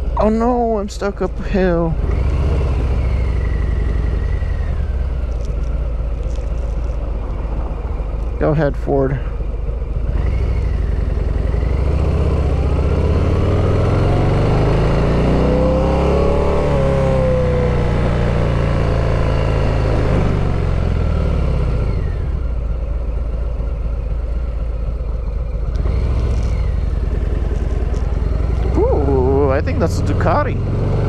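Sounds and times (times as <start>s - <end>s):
motorcycle engine accelerating: 0.0s - 31.0s.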